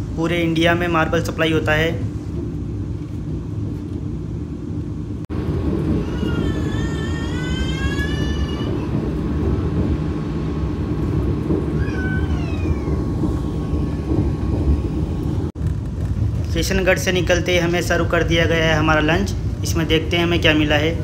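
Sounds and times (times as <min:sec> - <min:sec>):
train coach rumble: 0:00.0 - 0:21.0
high wavering cries: 0:11.7 - 0:14.5.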